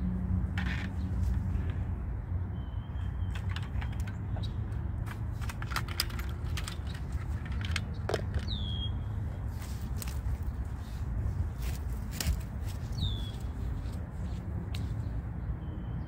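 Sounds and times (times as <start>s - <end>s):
small metal clicks and rattles: 3.3s - 8.6s.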